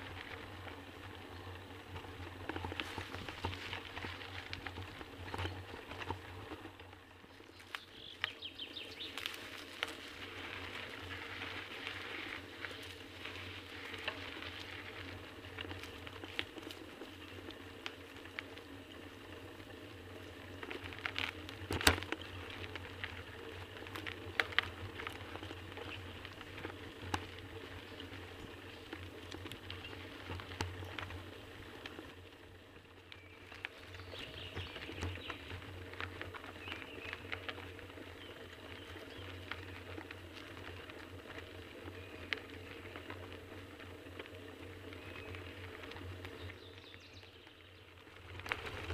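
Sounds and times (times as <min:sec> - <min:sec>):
bicycle tyres on dirt and leaves: 0:00.0 - 0:48.9
bike clicks and knocks: 0:00.1 - 0:32.2.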